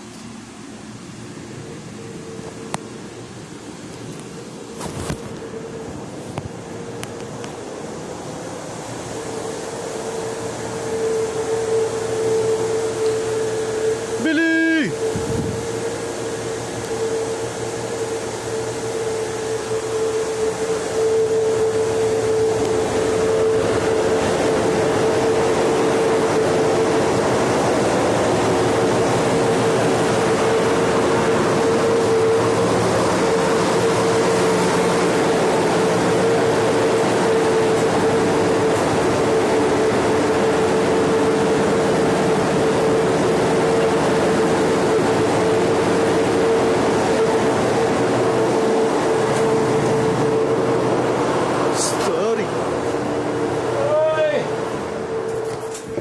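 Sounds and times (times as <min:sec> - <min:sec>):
droning hum tone: 0:00.0 - 0:56.0
machinery and ventilation noise: 0:00.0 - 0:56.0.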